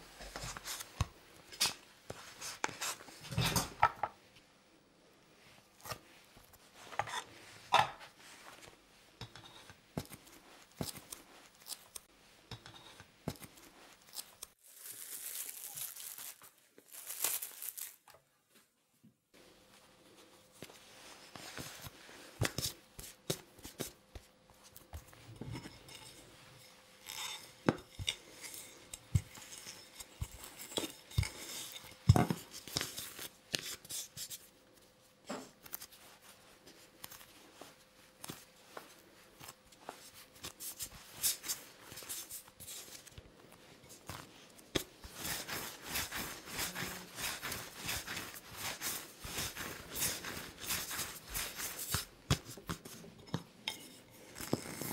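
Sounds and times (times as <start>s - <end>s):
dough rubbing on board: 44.8s - 52.9s.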